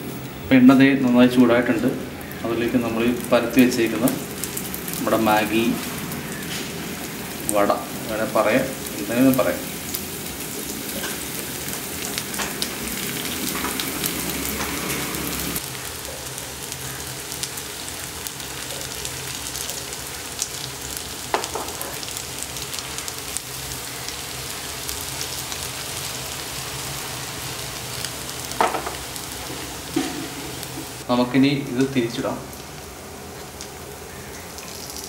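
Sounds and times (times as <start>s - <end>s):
oil sizzling in frying pan: 0.0s - 35.0s
light knocks in pan: 28.6s - 29.0s.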